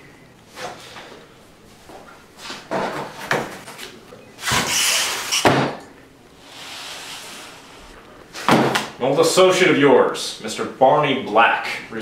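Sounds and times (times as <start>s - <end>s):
paper folder sliding across table: 6.4s - 8.6s.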